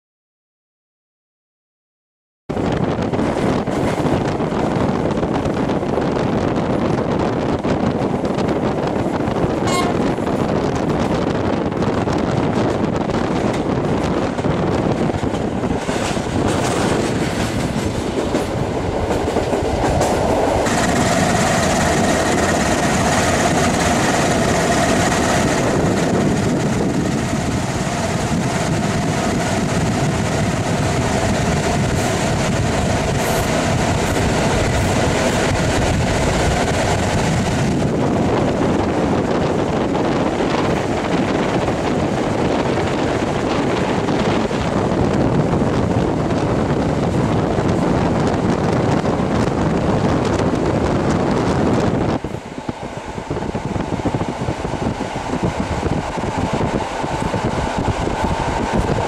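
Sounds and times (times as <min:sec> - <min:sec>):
train wheels clattering over rail joints: 0:12.6 - 0:38.4.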